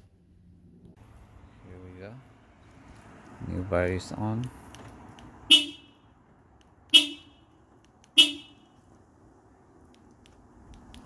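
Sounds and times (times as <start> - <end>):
car horn chirping: 5.4 - 6.1, 6.9 - 8.8.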